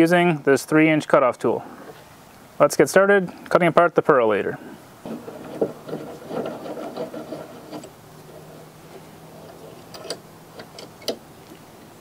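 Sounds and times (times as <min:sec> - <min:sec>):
vise rattling and clicking: 0:05.0 - 0:11.2.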